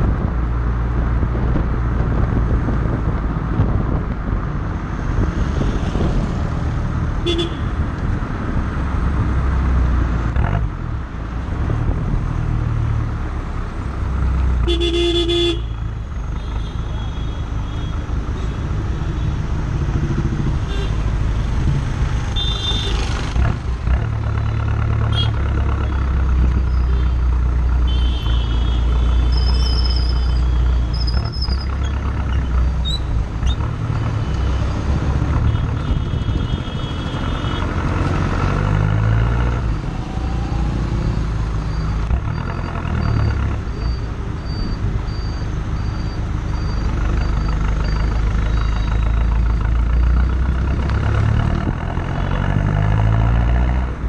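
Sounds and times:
road noise: 0:00.0 - 0:54.0.

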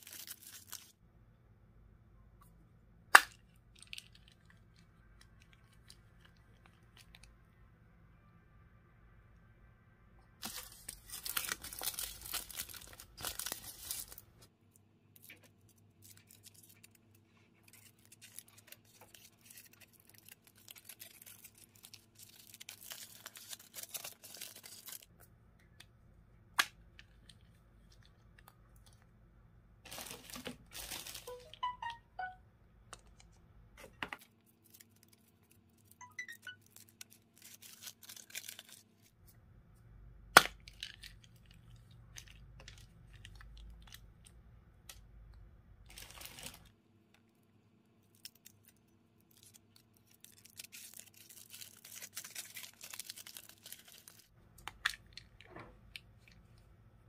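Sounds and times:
foil wrappers crinkling and tearing: 0:00.0 - 0:01.0, 0:10.4 - 0:14.4, 0:15.2 - 0:25.1, 0:29.9 - 0:31.7, 0:34.4 - 0:36.0, 0:36.6 - 0:39.1, 0:45.9 - 0:46.7, 0:48.1 - 0:54.3.

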